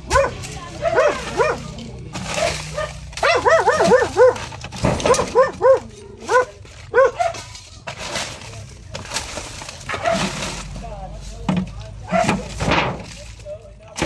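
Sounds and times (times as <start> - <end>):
dog barking: 0.1 - 1.8, 2.4 - 7.5, 9.9 - 10.3, 12.1 - 12.4.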